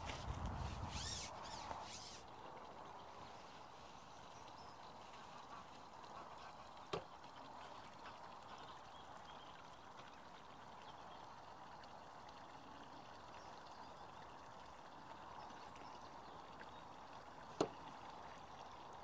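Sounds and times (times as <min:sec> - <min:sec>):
faint outdoor ambience: 0:00.0 - 0:19.0.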